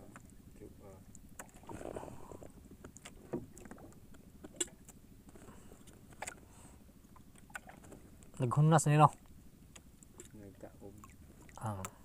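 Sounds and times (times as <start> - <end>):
faint sharp clicks and knocks: 2.4 - 6.5, 9.1 - 10.4.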